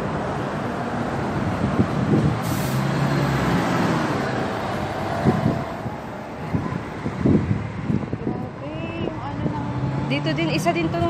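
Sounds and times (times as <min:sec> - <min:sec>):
heavy vehicle engine running: 0:00.0 - 0:09.6
street traffic: 0:00.0 - 0:11.0
short hiss: 0:02.4 - 0:02.9.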